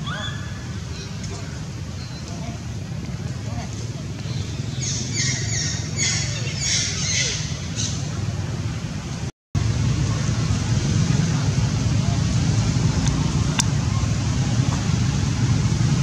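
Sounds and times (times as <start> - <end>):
harsh squawking calls: 0.0 - 2.7, 3.5 - 8.1.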